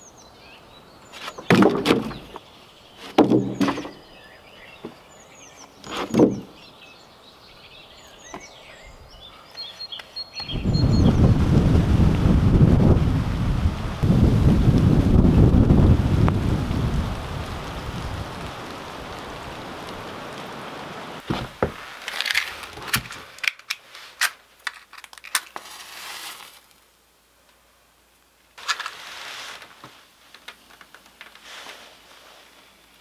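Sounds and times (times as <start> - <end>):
wood clicking and knocking: 1.2 - 4.0, 5.8 - 6.6, 21.2 - 23.8
rain hiss: 6.6 - 33.0
faint fire crackling: 9.2 - 33.0
match striking and flaring: 21.2 - 26.8.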